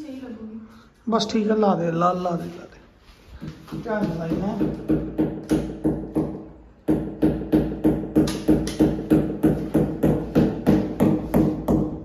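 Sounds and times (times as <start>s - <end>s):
hammer tapping a nail: 4.0s - 12.0s.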